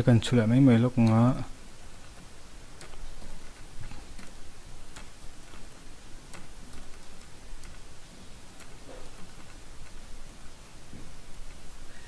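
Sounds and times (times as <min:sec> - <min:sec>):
background hiss: 0:00.0 - 0:12.0
keyboard keys clicking: 0:02.0 - 0:07.9.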